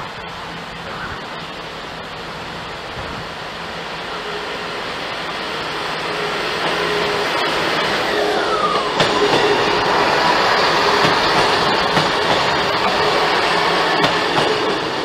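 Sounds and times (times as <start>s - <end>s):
diesel train approaching: 0.0s - 15.0s.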